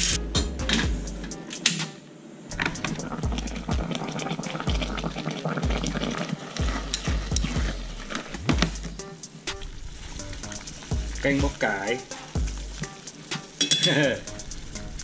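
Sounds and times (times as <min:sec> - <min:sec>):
food frying crackle: 0:02.5 - 0:15.0
dull low thumps: 0:02.6 - 0:03.9, 0:06.6 - 0:09.1.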